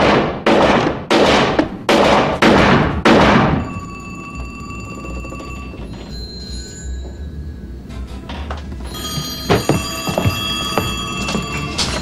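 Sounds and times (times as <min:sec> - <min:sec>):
pistol shots: 0:00.0 - 0:03.6
high ringing tone: 0:03.6 - 0:08.2, 0:08.8 - 0:12.0.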